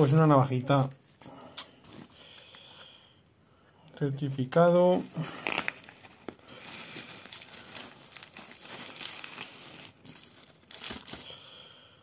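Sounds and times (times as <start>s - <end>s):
plastic wrapping crinkling: 4.9s - 11.4s.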